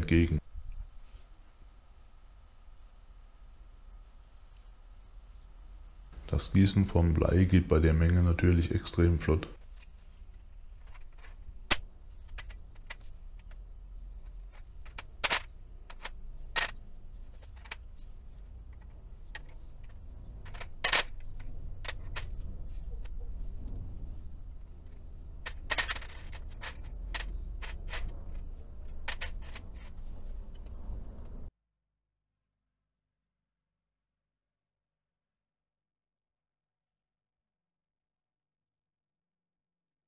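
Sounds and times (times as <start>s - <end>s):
steady low rumble: 11.4s - 31.5s.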